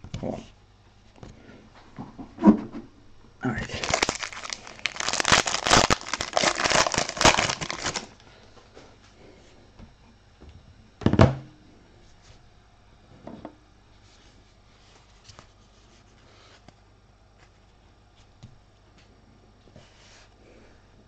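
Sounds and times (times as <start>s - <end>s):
cards clicking and rustling: 3.7s - 8.2s.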